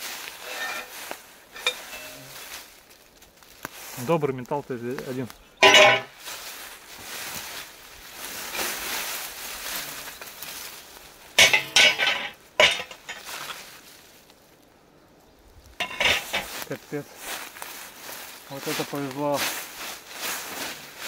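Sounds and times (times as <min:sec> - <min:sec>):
rustling in dry grass: 0:00.0 - 0:21.0
metallic clanks: 0:00.4 - 0:02.4, 0:05.6 - 0:06.1, 0:11.4 - 0:13.3, 0:15.8 - 0:16.6.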